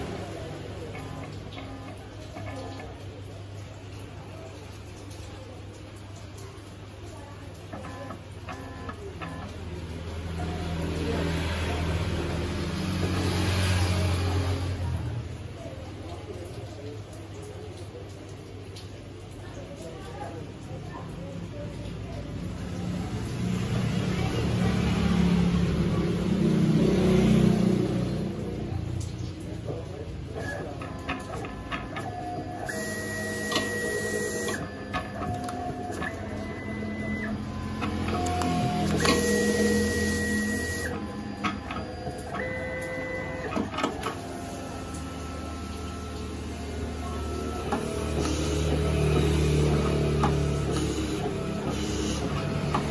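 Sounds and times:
cutting plotter motors whining: 0.0 - 2.9, 7.7 - 14.8, 30.3 - 52.9.

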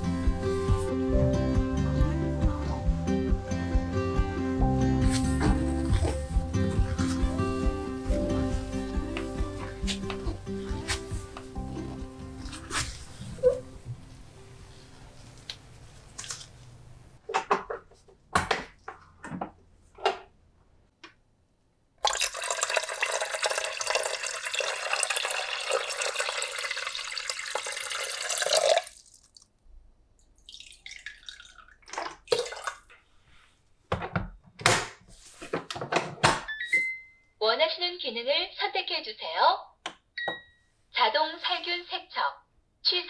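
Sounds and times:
tap water running into pot: 22.0 - 29.4, 30.4 - 32.9.

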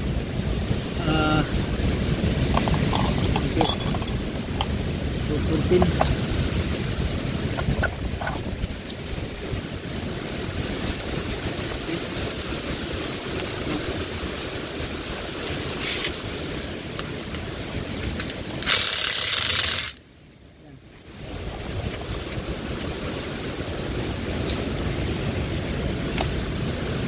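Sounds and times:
loud hiss: 0.8 - 9.1.

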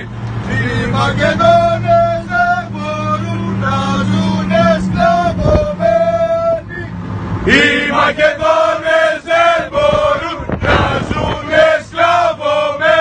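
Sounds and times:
soldiers chanting in unison: 7.4 - 13.0.

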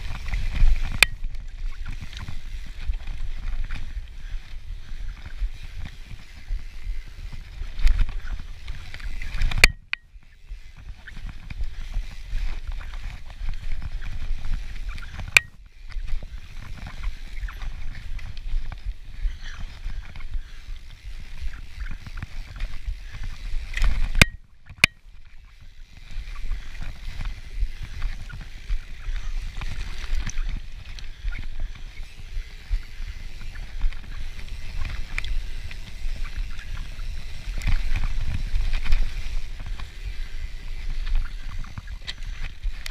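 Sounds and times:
bike rattling: 0.0 - 42.9
sharp clacks from bike: 0.0 - 42.9
tyre noise on dirt: 0.0 - 42.9
wind rumble on microphone: 25.6 - 42.9.

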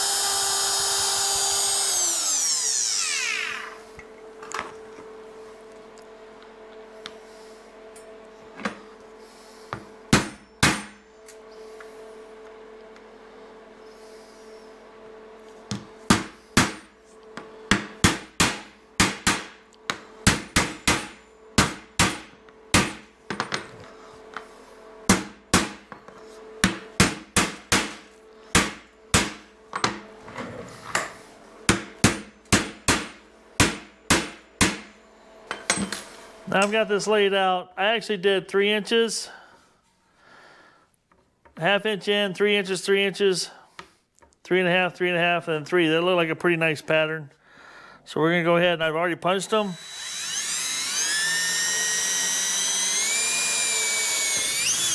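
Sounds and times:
steady hum: 0.0 - 43.9.

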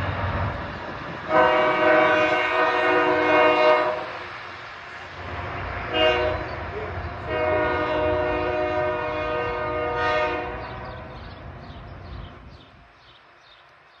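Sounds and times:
train rumble: 0.0 - 14.0
train horn blast: 1.3 - 4.4, 5.2 - 11.3.

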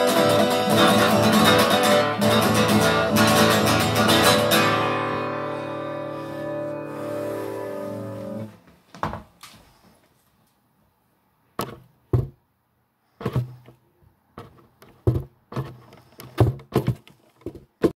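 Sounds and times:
handling knocks and thumps: 11.6 - 12.4, 13.2 - 18.0.

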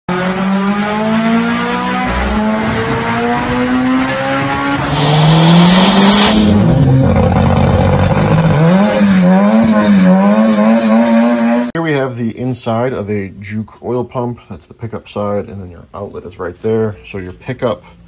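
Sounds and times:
car engine accelerating: 0.1 - 11.7.

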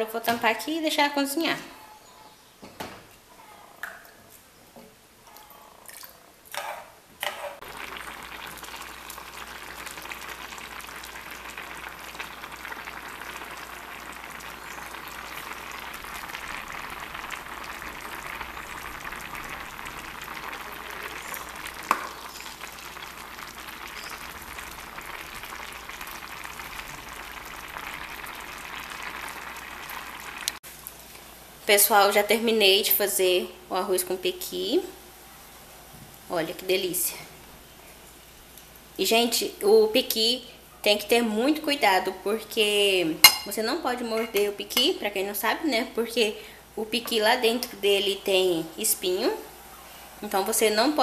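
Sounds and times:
pot boiling and bubbling: 5.3 - 33.0, 40.8 - 51.0
metal spoon knocking on pot: 43.3 - 43.5.

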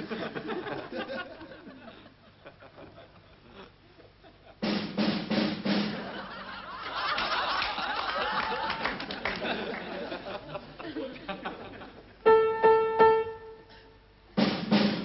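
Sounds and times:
drum music with snare rolls: 4.6 - 6.3, 14.4 - 15.0.

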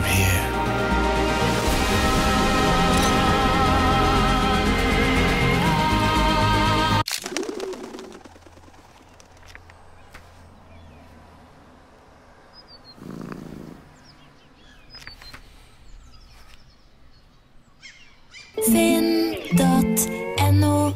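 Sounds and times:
cat purring: 13.0 - 13.8.

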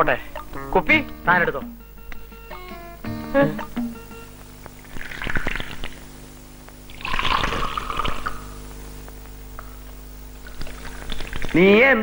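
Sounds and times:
liquor pouring into cup: 4.8 - 6.0, 6.8 - 8.6, 10.4 - 11.6.

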